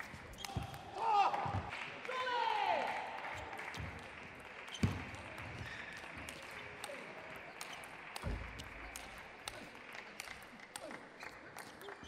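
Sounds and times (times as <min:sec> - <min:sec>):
faint crowd noise: 0:00.0 - 0:12.0
light ball ticks: 0:06.2 - 0:12.0.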